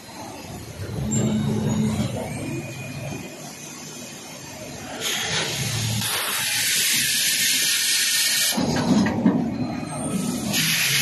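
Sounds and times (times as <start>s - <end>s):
machine hissing: 4.8s - 8.7s, 10.1s - 11.0s.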